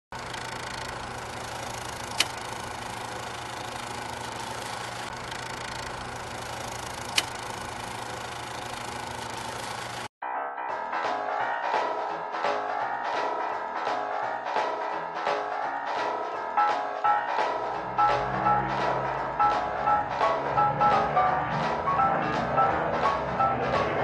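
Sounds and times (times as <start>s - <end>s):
film projector clattering: 0.1s - 10.1s.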